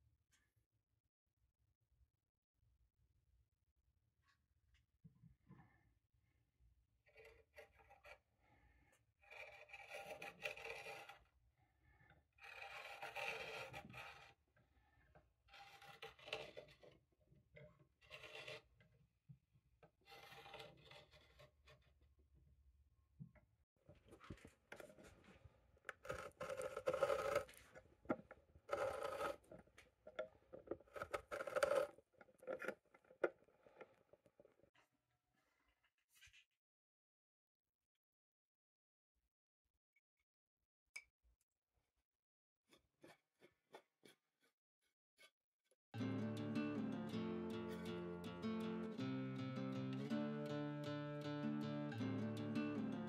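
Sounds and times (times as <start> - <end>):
threaded rod grinding against wood: 12.4 - 14.3, 25.9 - 34.0.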